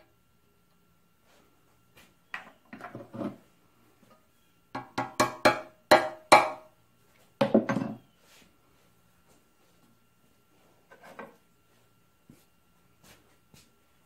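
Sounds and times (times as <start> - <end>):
hammer tapping on metal: 4.7 - 6.7.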